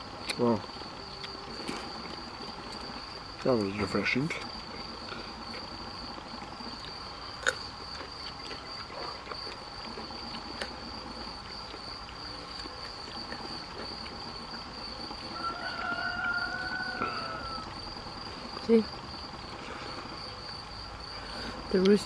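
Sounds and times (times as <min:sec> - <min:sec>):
crickets chirring: 0:00.0 - 0:22.0
rooster crowing: 0:15.2 - 0:17.9.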